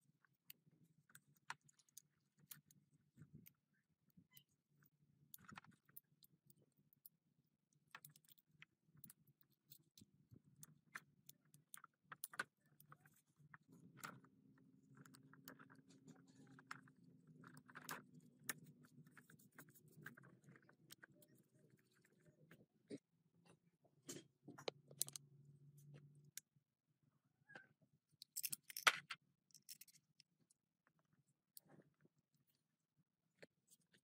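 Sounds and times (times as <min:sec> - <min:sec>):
metal clicks and clinks: 0:28.2 - 0:30.2.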